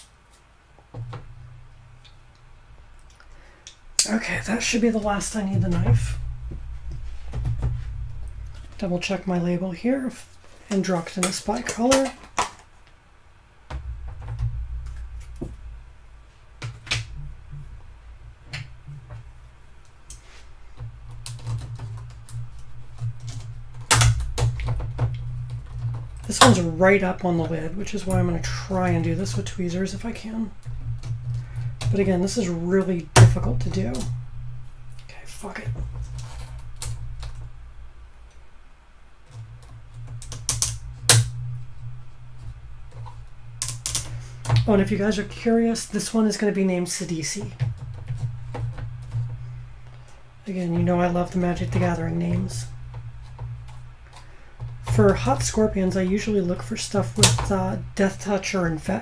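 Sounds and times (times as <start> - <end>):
low hum: 0.0 - 59.0
low rumble: 0.8 - 11.8, 12.7 - 59.0
plastic containers tapping and knocking: 20.6 - 32.4, 47.4 - 50.2.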